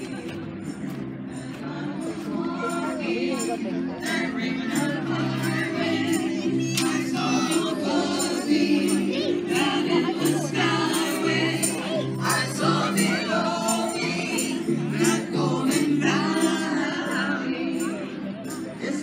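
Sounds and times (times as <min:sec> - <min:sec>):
person singing: 0:01.4 - 0:19.0.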